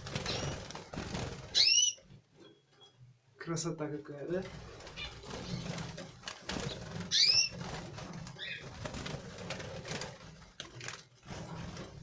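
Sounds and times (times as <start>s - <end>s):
wing flutters: 0.0s - 1.8s, 4.5s - 12.0s.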